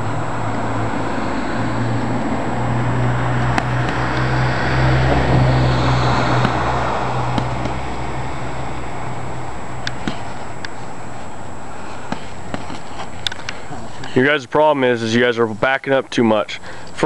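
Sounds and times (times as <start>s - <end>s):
passing vehicle rumble: 0.0s - 10.5s
boxing glove thuds: 6.4s - 7.9s, 10.0s - 10.3s.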